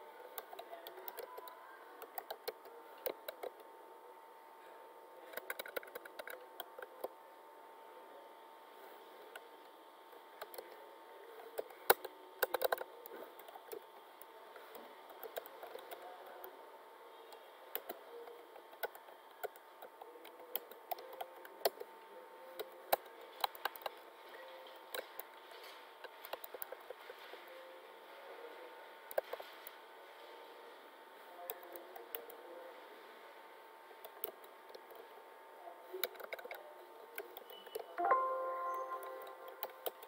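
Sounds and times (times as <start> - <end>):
faint steady hum: 0.0 - 40.0
keyboard keystroke clicks: 5.3 - 7.1, 37.2 - 40.0.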